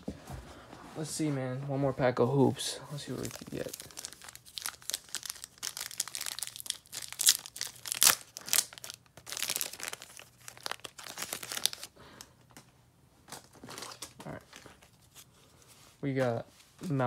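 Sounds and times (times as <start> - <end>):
wrapper tearing and crinkling: 3.1 - 11.9.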